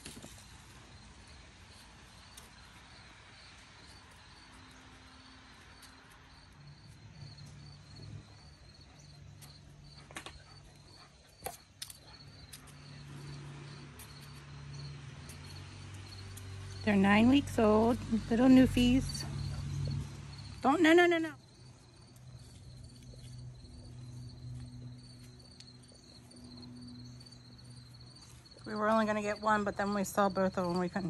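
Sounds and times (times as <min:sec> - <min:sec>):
high-pitched insect chirping: 0:10.6 - 0:16.9.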